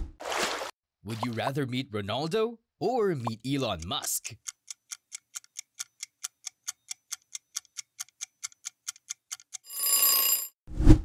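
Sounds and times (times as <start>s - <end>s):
clock ticking fast: 3.2s - 9.7s
timer ringing: 9.6s - 10.5s.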